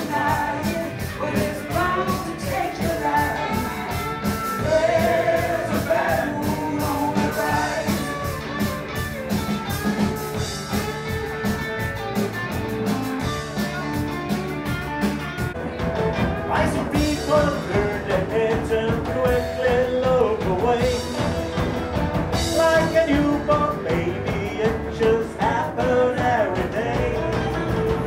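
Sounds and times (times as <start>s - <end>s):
lead singing: 0.0s - 8.8s, 16.4s - 21.6s, 22.3s - 28.0s
electric guitar: 0.0s - 28.0s
steady drum beat: 0.0s - 28.0s.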